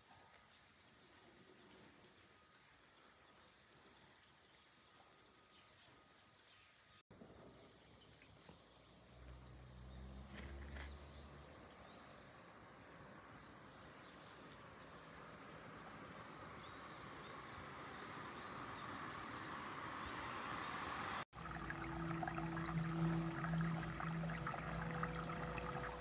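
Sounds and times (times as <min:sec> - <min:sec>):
low hum: 0:21.4 - 0:26.0.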